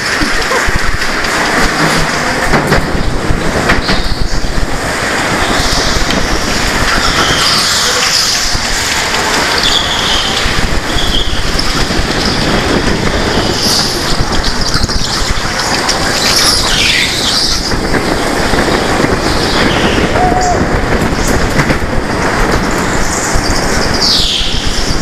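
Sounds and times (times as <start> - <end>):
go-kart motor and road noise: 0.0 - 25.0.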